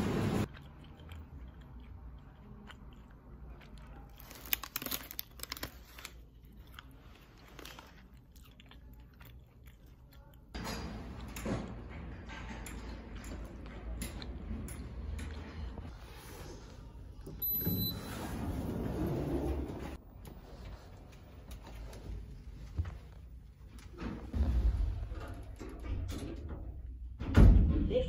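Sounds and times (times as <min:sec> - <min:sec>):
person chewing pastry: 0:00.4 - 0:10.6.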